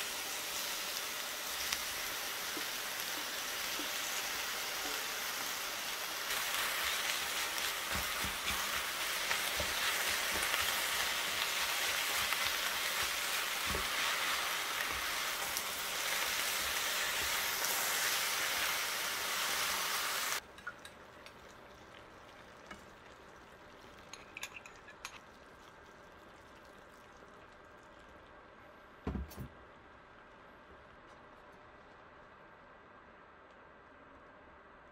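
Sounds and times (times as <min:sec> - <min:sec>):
food sizzling in frying pan: 0:00.0 - 0:25.2.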